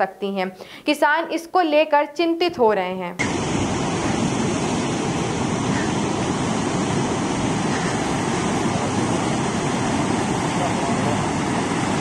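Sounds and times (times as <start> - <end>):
flooded river rushing: 3.2 - 12.0.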